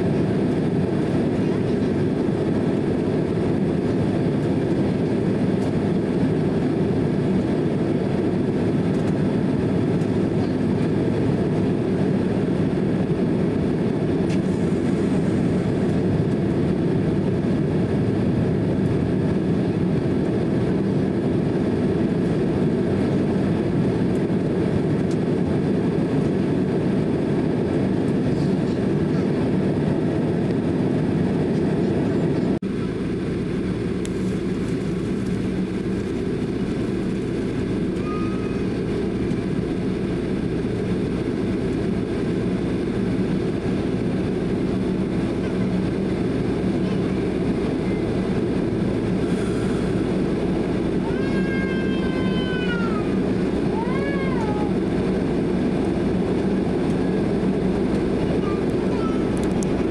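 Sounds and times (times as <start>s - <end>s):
airliner cabin rumble: 0.0s - 59.9s.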